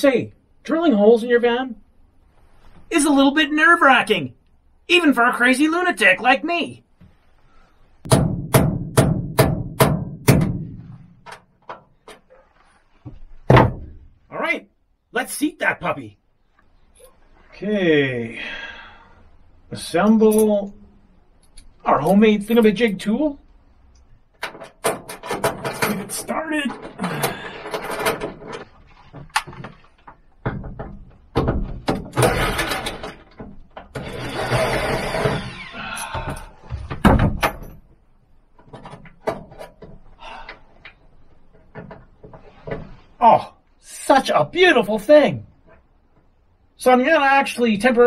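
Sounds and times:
hammer striking sheet metal: 8.1 - 10.8.

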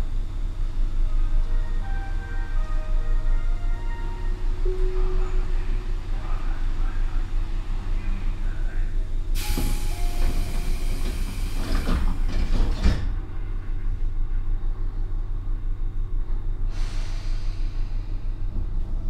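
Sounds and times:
hiss of air from train doors: 9.4 - 12.3, 16.6 - 18.4.

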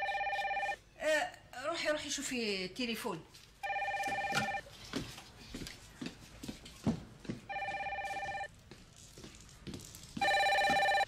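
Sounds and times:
telephone ringing electronic trills: 0.0 - 0.8, 3.6 - 4.6, 7.5 - 8.5, 10.2 - 11.0.

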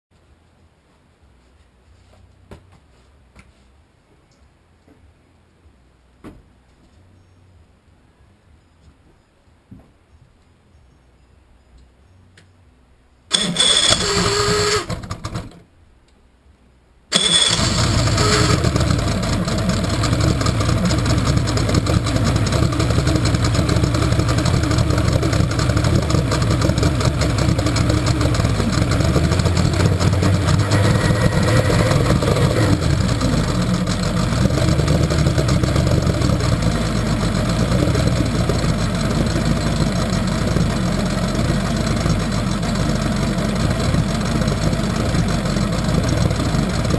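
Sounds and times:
outboard engine starting and running: 13.3 - 15.7, 17.1 - 46.9.

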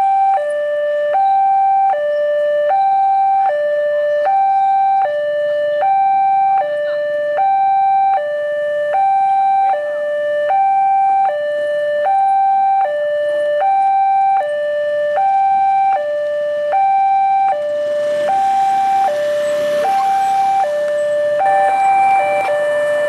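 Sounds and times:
level-crossing two-tone alarm: 0.0 - 23.0
rising rush of noise: 17.7 - 23.0.

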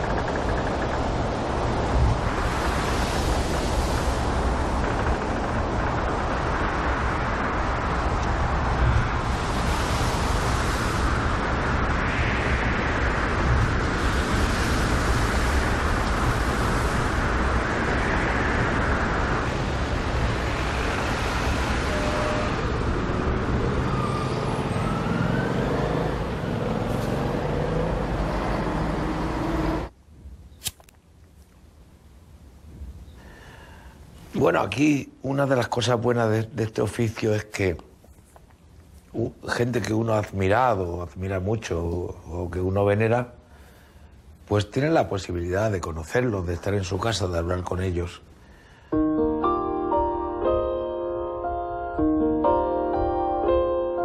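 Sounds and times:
breaking surf: 0.0 - 22.5
storm wind: 0.0 - 30.5
cigarette lighter click: 30.6 - 31.0.

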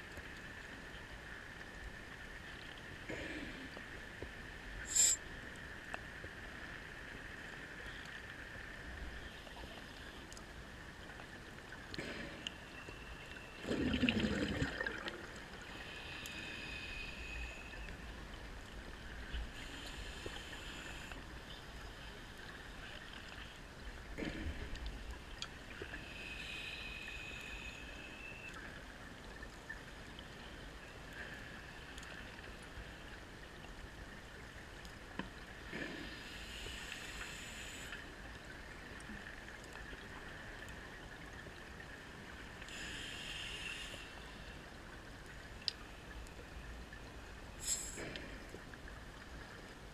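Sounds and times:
gurgling bubble bursts: 13.6 - 15.3.

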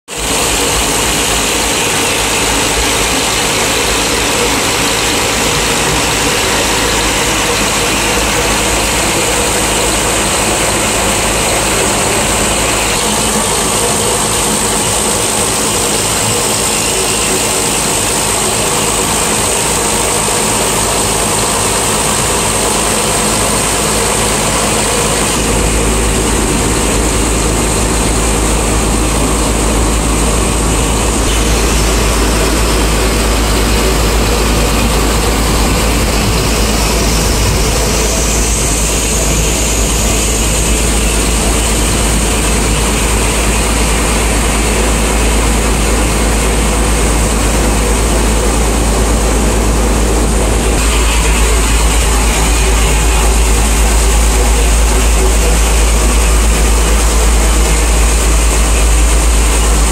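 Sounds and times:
boat diesel engine running: 0.0 - 59.9
rushing wind and water: 0.1 - 59.9
low rumble: 24.3 - 59.9.

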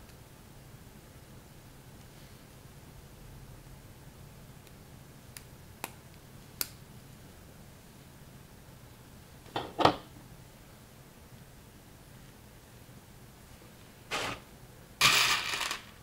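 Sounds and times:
plastic bricks clattering: 15.0 - 16.0.

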